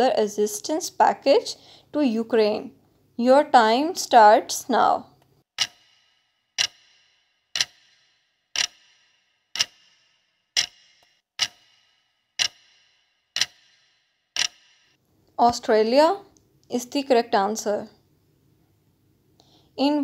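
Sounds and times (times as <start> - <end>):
clock ticks with bright ring: 5.6 - 15.0.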